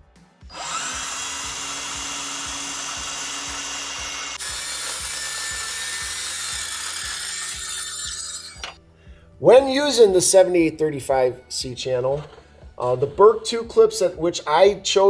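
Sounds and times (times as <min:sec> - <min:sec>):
circular saw cutting metal: 0:00.5 - 0:08.8.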